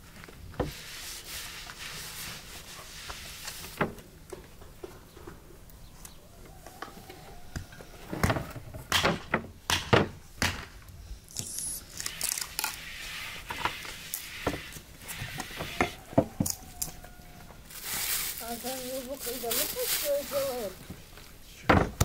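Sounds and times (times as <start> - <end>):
flour pouring and rustling: 17.7 - 20.8.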